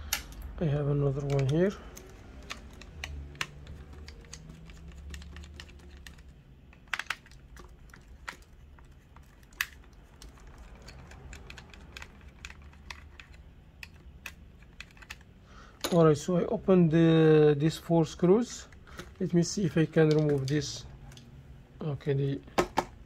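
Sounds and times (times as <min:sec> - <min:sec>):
screwdriver clicking on plastic: 0:01.2 - 0:08.4.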